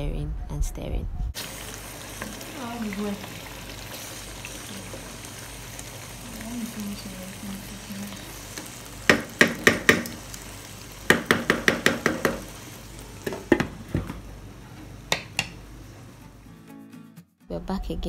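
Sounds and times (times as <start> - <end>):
sauce bubbling and sizzling: 1.4 - 16.5
spatula tapping against pan: 9.0 - 10.2, 11.1 - 12.5, 13.2 - 13.8, 15.1 - 15.6.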